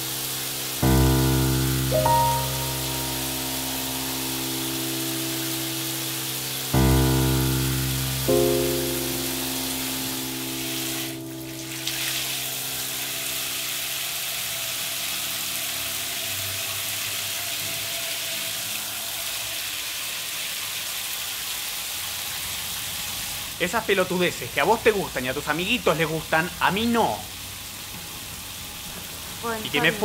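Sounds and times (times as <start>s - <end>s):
sustained musical chord: 0.0s - 14.2s
shower water spraying: 0.0s - 23.6s.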